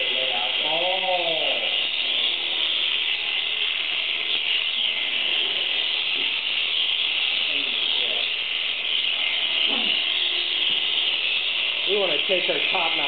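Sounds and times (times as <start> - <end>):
electric shears buzzing: 0.0 - 13.0.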